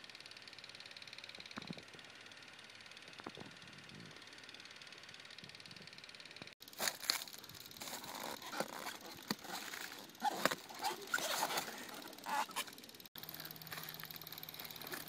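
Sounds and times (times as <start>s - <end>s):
leaves rustling and crackling: 6.6s - 12.4s.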